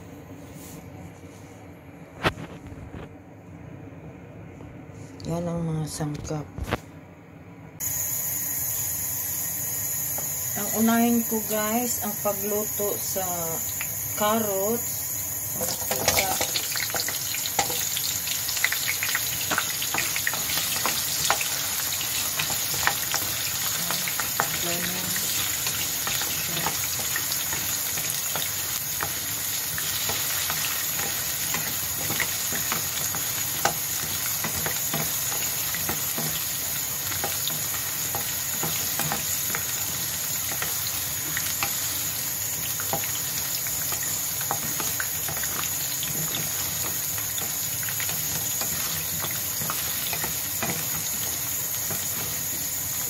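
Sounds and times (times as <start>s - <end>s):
frying sizzle with pops: 7.8s - 53.0s
wooden spatula stirring in pan: 15.6s - 53.0s.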